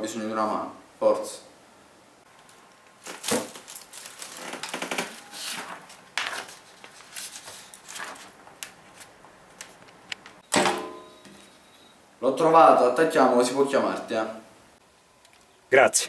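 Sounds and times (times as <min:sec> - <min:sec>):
paper rustling: 0:02.4 - 0:10.4.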